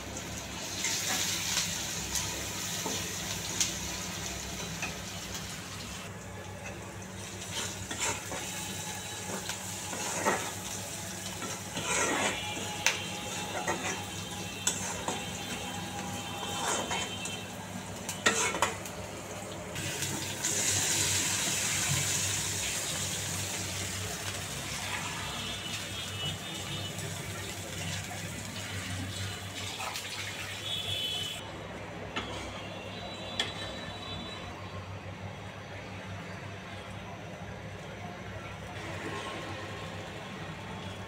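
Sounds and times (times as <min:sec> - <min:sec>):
water hissing in hot pan: 0:00.0 - 0:06.1, 0:19.8 - 0:31.3
onions frying: 0:00.0 - 0:31.4
spatula scraping a pan: 0:07.4 - 0:10.7, 0:11.3 - 0:17.4, 0:18.1 - 0:18.8.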